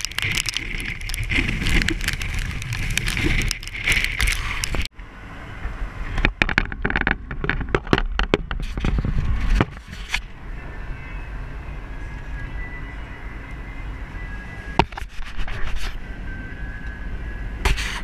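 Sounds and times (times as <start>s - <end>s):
car driving on wet road: 0.0s - 8.2s
car cabin road and engine noise: 0.0s - 18.0s.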